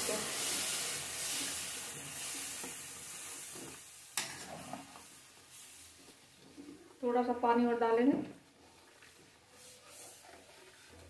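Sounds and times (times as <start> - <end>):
batter sizzling in hot pan: 0.0 - 11.0
metal spatula stirring: 0.3 - 5.8, 8.6 - 11.0.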